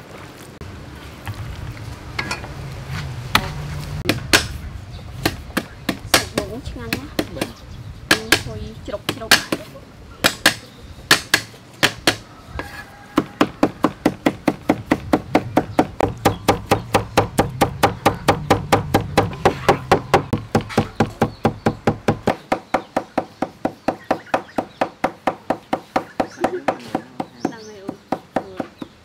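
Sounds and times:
cleaver chopping on wooden board: 4.1 - 4.6, 5.2 - 7.5, 9.1 - 29.0.

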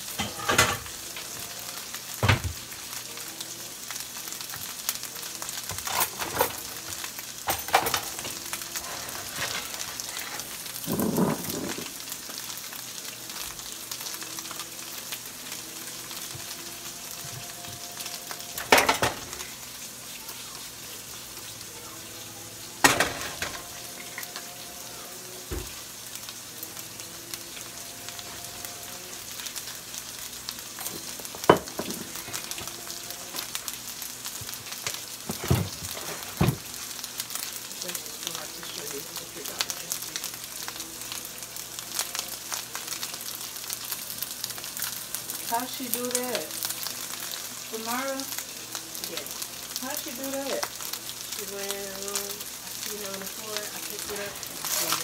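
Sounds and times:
rice sizzling in oil: 0.0 - 55.0.

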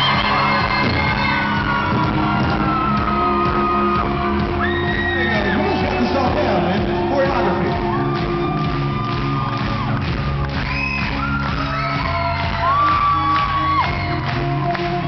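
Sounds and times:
shouts over music: 0.0 - 14.5
live rock band: 0.0 - 15.0.

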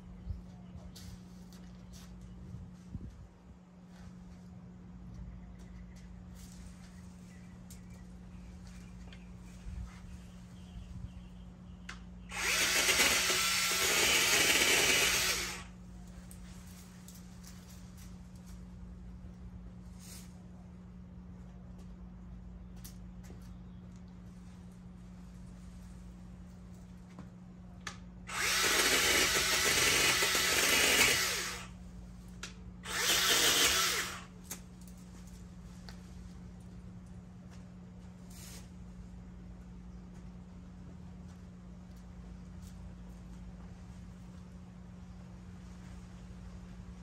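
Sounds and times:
mini chainsaw cutting branches: 12.3 - 15.8, 28.3 - 31.8, 32.8 - 34.6.

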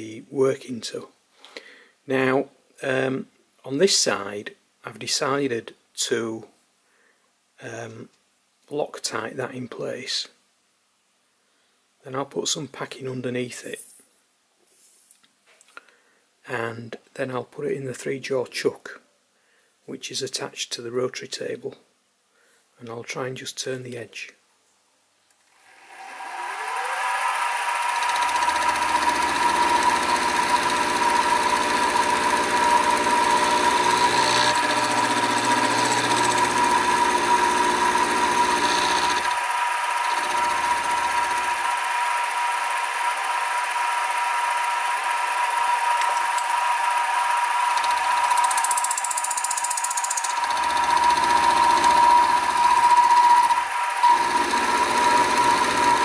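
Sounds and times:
mill spindle whining: 25.3 - 56.0
end mill grinding metal: 25.6 - 56.0.

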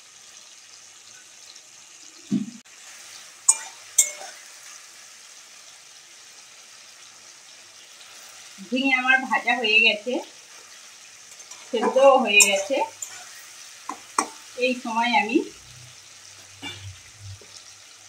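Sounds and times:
vegetables sizzling in oil: 0.0 - 18.0
spatula clinking against pan: 3.5 - 4.4, 11.3 - 14.4
metal spatula stirring in wok: 3.5 - 4.6, 11.2 - 14.5.

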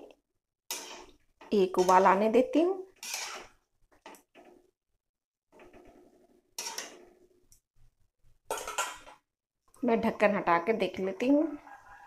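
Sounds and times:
metal spatula scraping pan: 0.7 - 4.5, 5.6 - 7.3.

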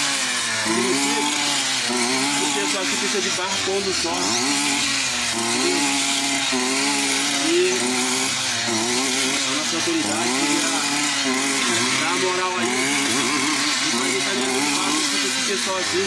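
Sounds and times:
man talking: 0.7 - 4.7, 7.2 - 16.0.

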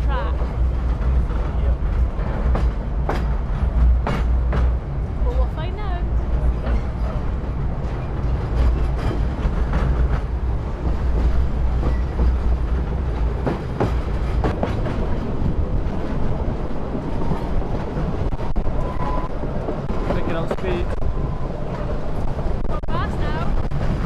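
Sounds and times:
train rumbling: 0.0 - 24.0
sharp clacks and knocks: 0.4 - 4.8, 6.6 - 18.5.

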